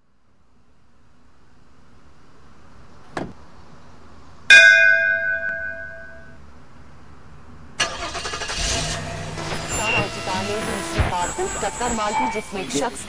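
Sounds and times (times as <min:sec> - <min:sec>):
loud ringing chime: 0:04.5 - 0:06.4, 0:09.0 - 0:13.0
car engine starting: 0:07.8 - 0:12.9.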